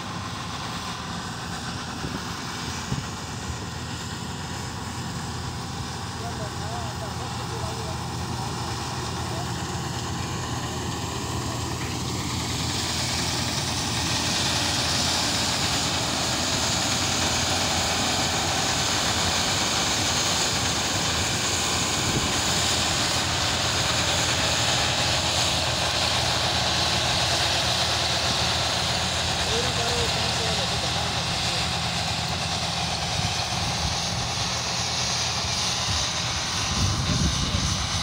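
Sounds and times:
combine harvester engine drone: 0:00.0 - 0:38.0
high rushing hiss: 0:00.0 - 0:38.0.

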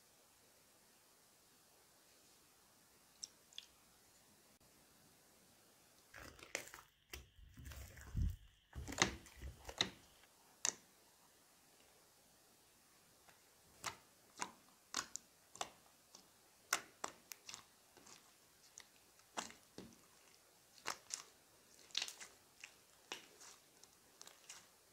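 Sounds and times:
spatula stirring slime: 0:06.0 - 0:10.9, 0:13.0 - 0:24.9.

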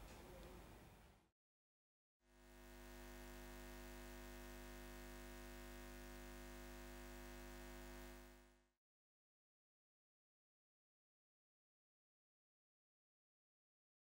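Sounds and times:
faint electrical hum: 0:02.4 - 0:08.6.

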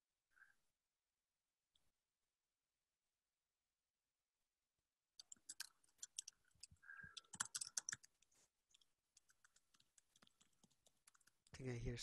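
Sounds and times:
typing on computer keyboard: 0:05.2 - 0:11.5.

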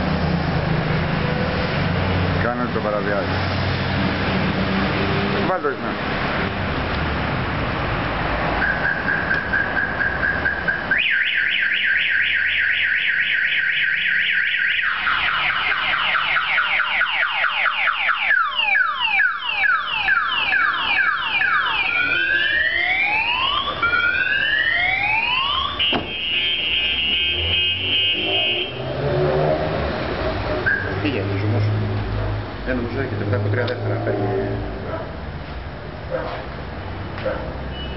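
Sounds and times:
car alarm siren: 0:08.6 - 0:28.8, 0:30.6 - 0:30.9.

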